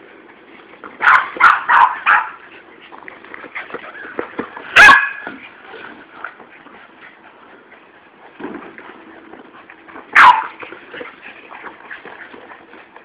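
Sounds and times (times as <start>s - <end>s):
dog barking: 1.0s - 2.4s, 4.8s - 5.2s, 10.2s - 10.6s.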